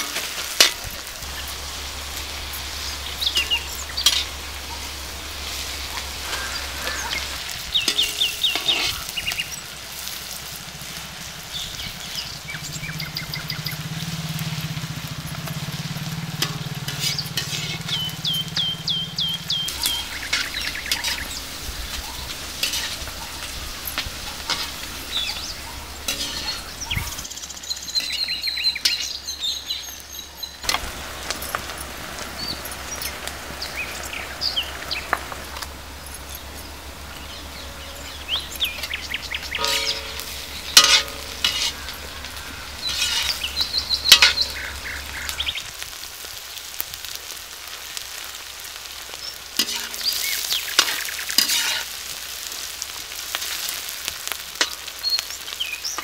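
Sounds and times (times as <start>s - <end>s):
metal ladle scraping wok: 0.0s - 27.3s, 30.6s - 45.5s, 49.6s - 52.0s
birds chirping: 0.0s - 47.2s, 48.9s - 56.0s
oil sizzling in a wok: 0.0s - 56.0s.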